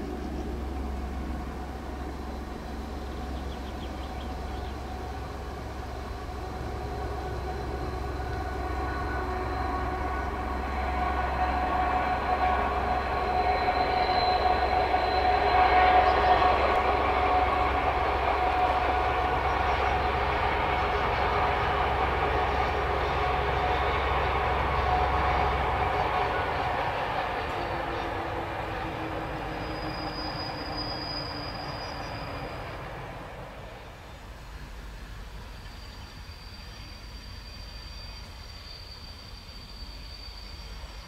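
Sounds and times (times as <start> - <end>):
diesel locomotive engine whine: 0.0 - 41.0.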